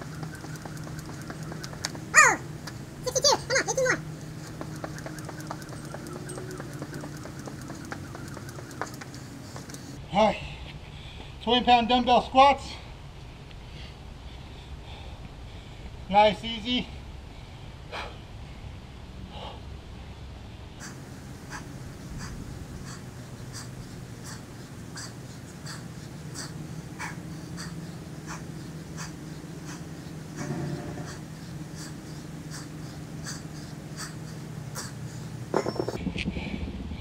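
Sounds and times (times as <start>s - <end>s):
steady low hum: 0.0s - 10.1s, 16.9s - 37.0s
man breathing hard: 17.2s - 18.7s, 21.5s - 35.4s.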